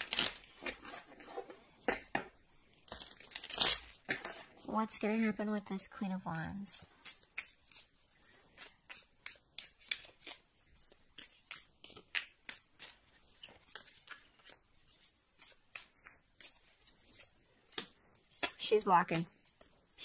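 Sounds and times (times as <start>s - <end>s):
cards being shuffled: 7.0s - 19.7s.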